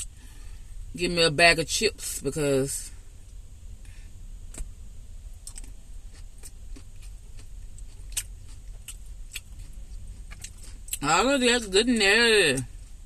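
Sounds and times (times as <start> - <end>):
low steady hum: 0.0 - 13.0
person chewing crunchy salad: 5.4 - 11.0.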